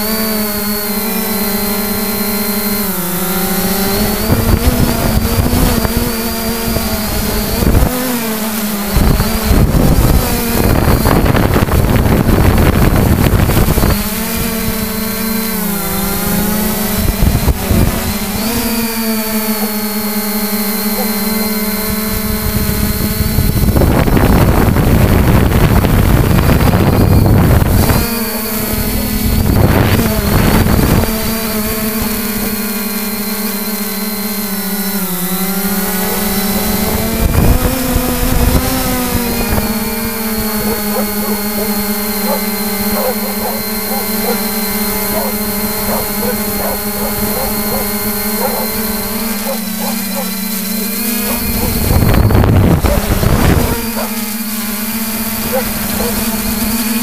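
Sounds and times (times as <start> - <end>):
drone propellers humming: 0.0 - 57.0
wind buffeting microphone: 3.8 - 18.9, 21.8 - 32.6, 35.6 - 50.3, 50.9 - 54.2.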